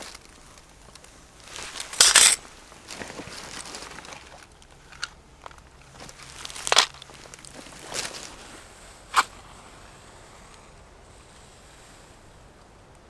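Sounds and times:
handling rustles: 0.0s - 9.8s.

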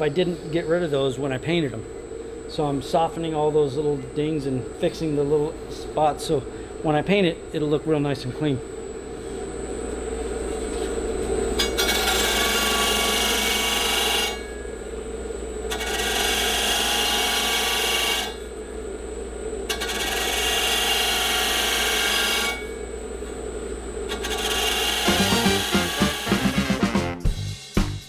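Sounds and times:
sander motor hum: 25.0s - 27.0s.

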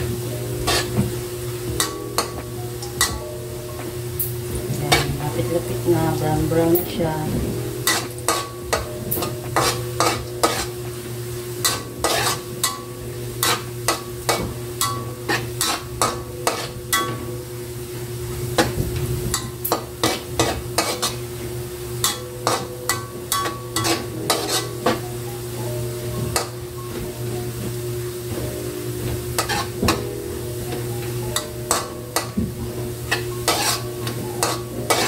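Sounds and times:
oil sizzling: 0.0s - 35.0s
metal spatula scraping a wok: 0.6s - 1.0s, 7.8s - 8.6s, 9.2s - 10.8s, 11.6s - 12.8s, 14.3s - 17.1s, 19.3s - 21.3s, 23.4s - 24.8s, 29.4s - 29.8s, 33.1s - 35.0s.

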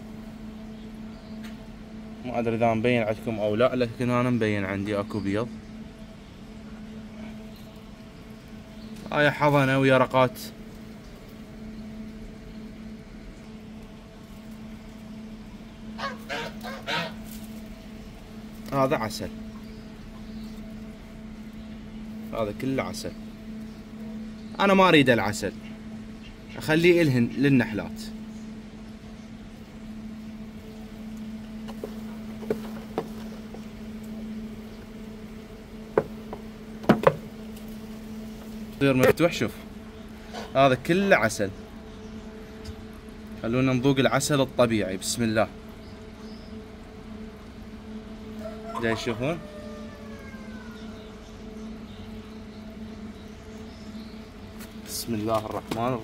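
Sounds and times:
honeybees buzzing: 0.0s - 56.0s
bird honking calls: 15.9s - 17.5s, 25.5s - 27.5s, 48.2s - 52.2s
light knocks on hive frames: 31.6s - 33.7s, 35.9s - 37.4s.

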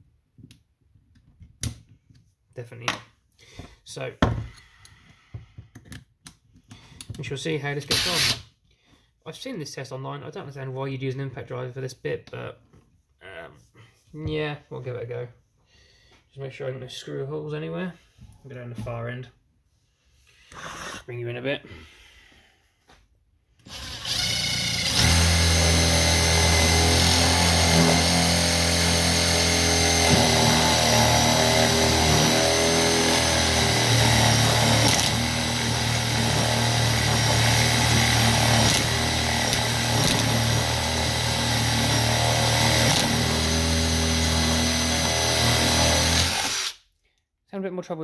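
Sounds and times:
impact driver boring into wood: 7.9s - 8.4s, 23.6s - 46.8s.

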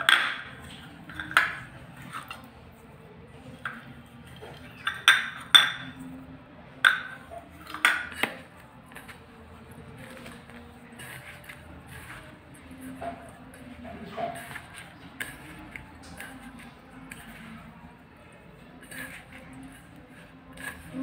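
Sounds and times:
steel bowl clinking: 0.0s - 2.5s, 3.6s - 6.2s.

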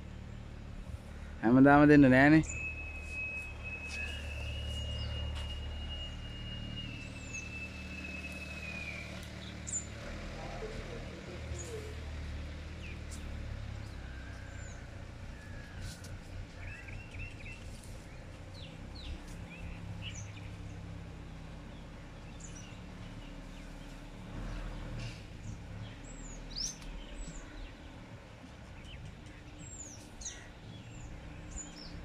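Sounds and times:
bird chirps and calls: 1.7s - 10.8s, 16.5s - 20.9s.

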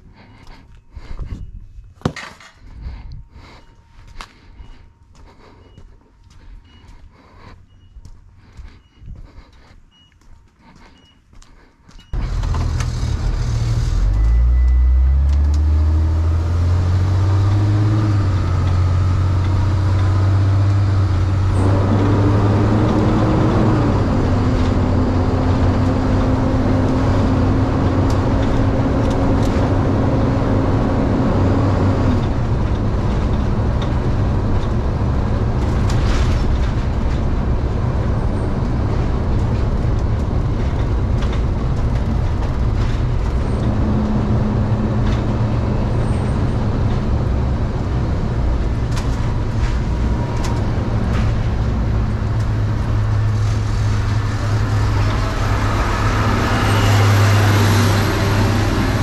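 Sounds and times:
road noise: 0.0s - 59.0s
van engine accelerating: 12.1s - 59.0s.

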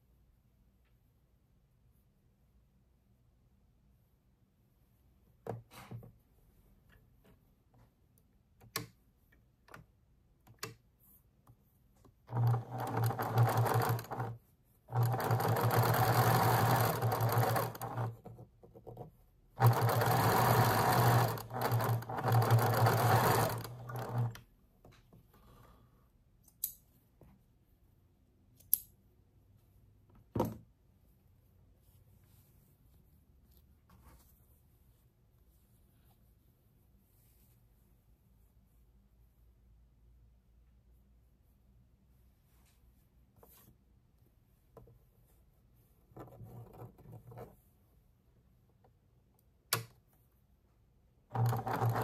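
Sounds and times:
sewing machine stitching: 12.2s - 24.5s, 51.3s - 52.0s.

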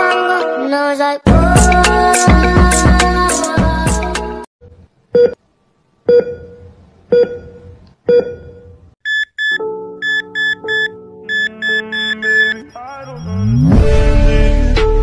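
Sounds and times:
bass-heavy music: 1.3s - 4.4s, 12.2s - 15.0s
heart monitor beeps: 6.1s - 13.6s.

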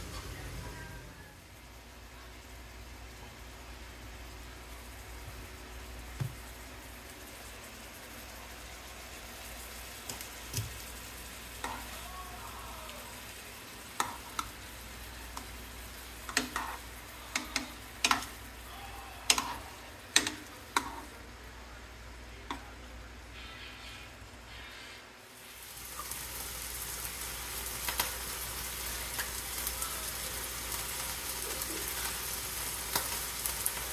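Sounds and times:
chicken sizzling in a frying pan: 0.0s - 22.1s, 25.2s - 33.9s
tongs clacking against pan: 16.2s - 18.4s, 19.3s - 21.1s.

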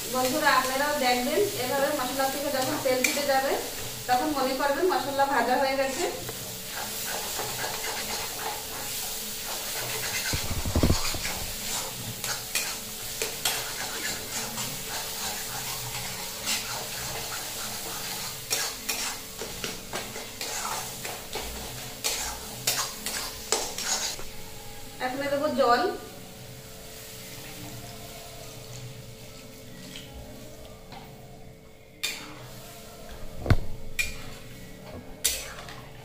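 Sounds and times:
spice paste sizzling: 0.0s - 30.6s
metal spatula scraping a pan: 6.7s - 24.2s
low thump: 33.4s - 33.9s.

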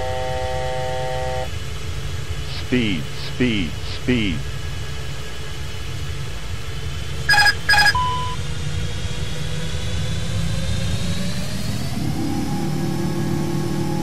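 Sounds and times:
cockpit low rumble: 0.0s - 14.0s
jet engine whine rising: 6.8s - 14.0s
short electronic beeps: 7.3s - 8.4s
steady electronic tone: 7.3s - 8.4s.

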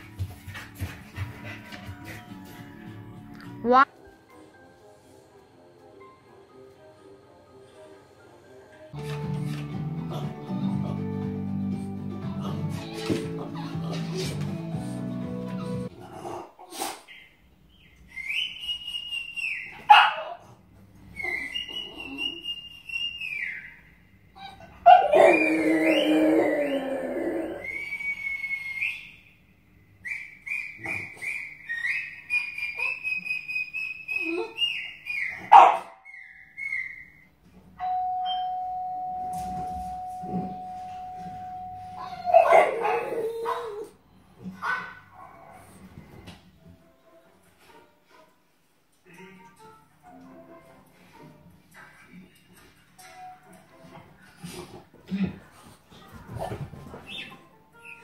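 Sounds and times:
dog barking: 19.9s - 20.4s, 35.5s - 36.0s, 42.3s - 43.8s, 44.6s - 45.6s
dog whining: 21.1s - 22.6s, 24.4s - 28.6s, 30.1s - 37.2s, 41.9s - 44.0s
dog yelping: 24.4s - 27.6s, 34.1s - 37.2s, 42.0s - 43.9s.

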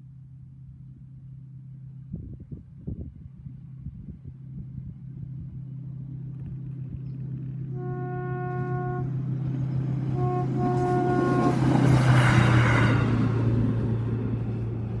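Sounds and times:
rail vehicle rushing past: 3.3s - 15.0s
rail vehicle horn blasts: 7.7s - 13.5s.

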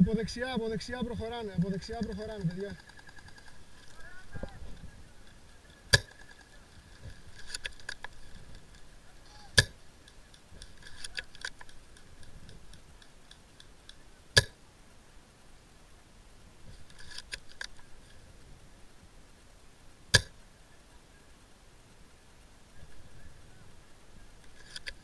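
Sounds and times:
faint clicking: 9.6s - 14.6s.

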